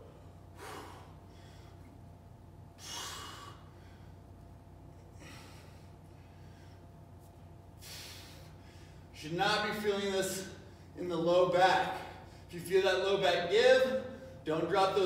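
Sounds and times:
man breathing hard: 0:00.0 - 0:02.0, 0:02.7 - 0:04.4, 0:05.0 - 0:07.0, 0:07.8 - 0:09.1
faint steady hum: 0:00.0 - 0:15.0.

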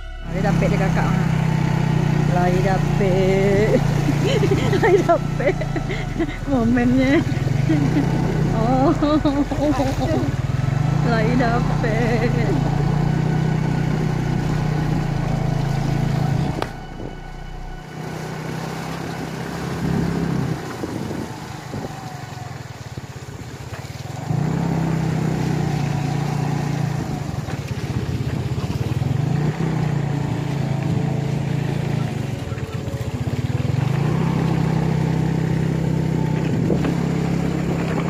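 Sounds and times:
small motorcycle engine running: 0:00.0 - 0:38.0.

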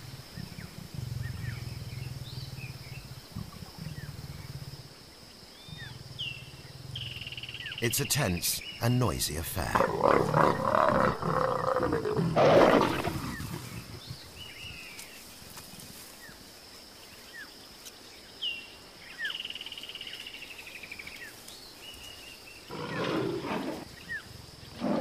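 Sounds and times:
leopards growling and snarling: 0:00.0 - 0:07.6, 0:09.7 - 0:14.9, 0:22.5 - 0:25.0.

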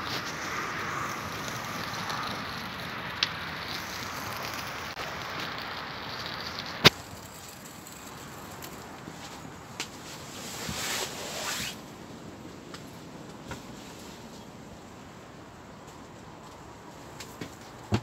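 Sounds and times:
loud snap of burning wood: 0:00.0 - 0:07.2
campfire hissing and crackling: 0:00.0 - 0:18.0
sharp crack of burning wood: 0:00.0 - 0:18.0.

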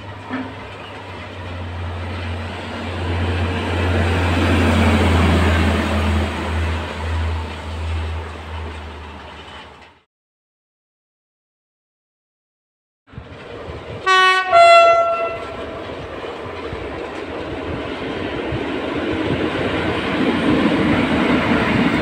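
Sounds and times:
wheels on rails: 0:06.8 - 0:10.0, 0:15.4 - 0:22.0.

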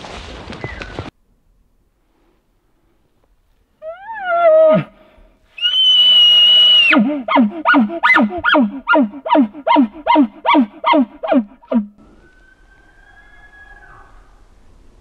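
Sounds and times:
elk call blown through a tube: 0:05.6 - 0:14.0.

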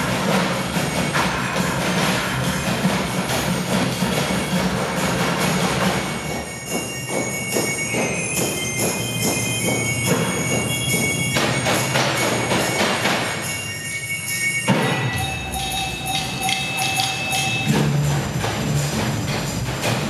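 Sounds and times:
percussion on buckets and cans: 0:00.0 - 0:20.0
ringing metallic tones: 0:00.0 - 0:20.0.

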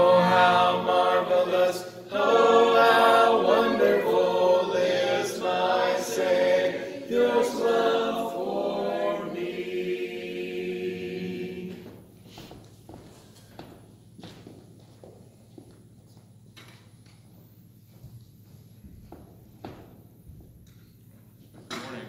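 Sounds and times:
voices singing a hymn a cappella: 0:00.0 - 0:12.5.

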